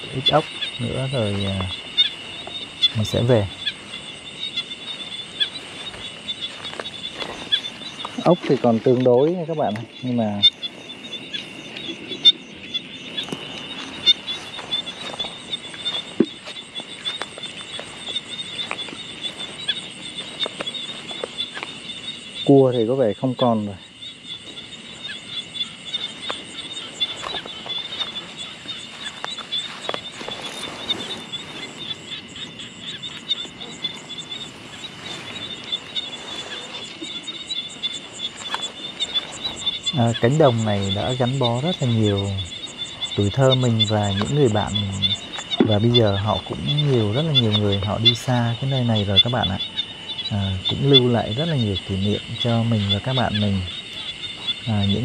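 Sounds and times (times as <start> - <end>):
footsteps through grass: 0.0 - 9.8, 10.5 - 22.5, 23.8 - 55.0
insects trilling: 0.0 - 55.0.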